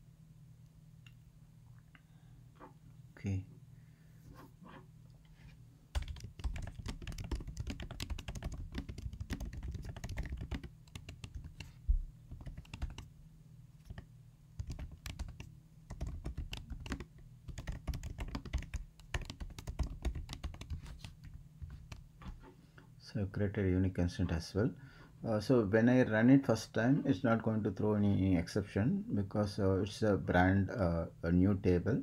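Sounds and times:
computer keyboard typing: 5.9s - 13.1s, 13.8s - 22.0s.

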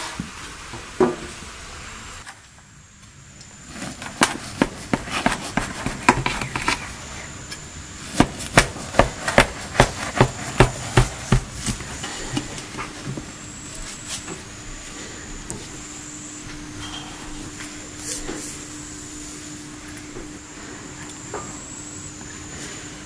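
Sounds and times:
knife crunching through bread crust: 3.8s - 7.0s, 8.0s - 12.3s.

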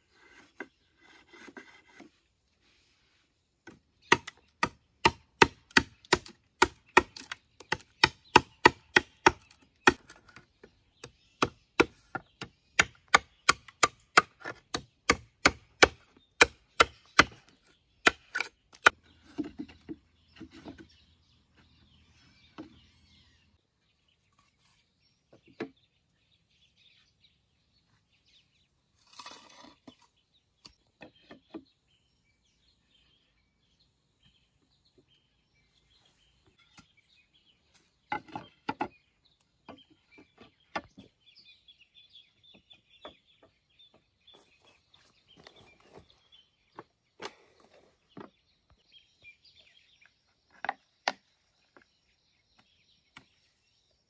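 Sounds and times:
blade chopping bamboo: 3.7s - 10.4s, 11.0s - 17.4s, 18.0s - 19.7s.

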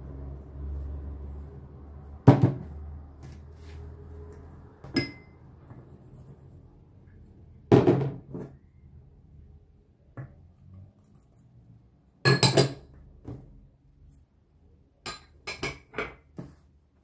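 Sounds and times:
containers knocking on a counter: 2.2s - 2.7s, 7.7s - 8.5s.

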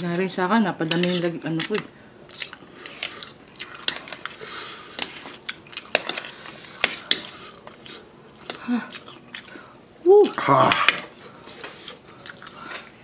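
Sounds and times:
chewing: 2.6s - 13.0s.

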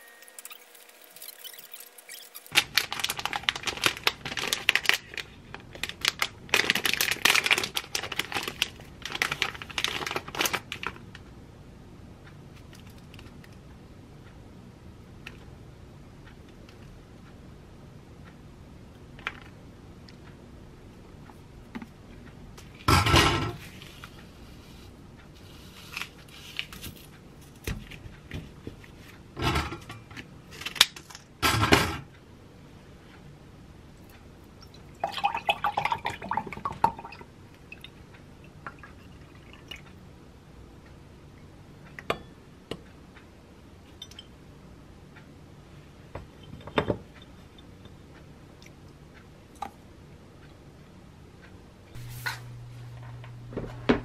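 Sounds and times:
kitchen handling clatter: 22.9s - 23.6s.

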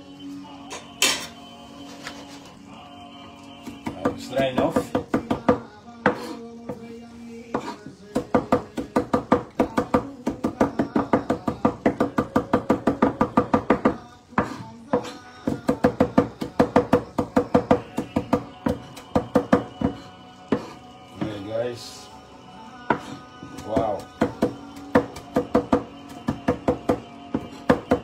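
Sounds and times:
music: 0.0s - 28.0s
knife chopping on wooden board: 3.7s - 6.4s, 7.5s - 21.3s, 22.9s - 28.0s.

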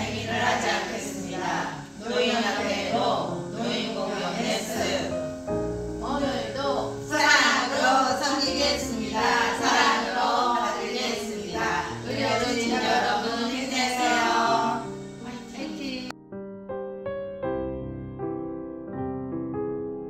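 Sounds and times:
women singing in unison: 0.0s - 5.2s, 6.1s - 16.1s
musical accompaniment: 0.0s - 20.0s
soft piano music: 0.0s - 20.0s.

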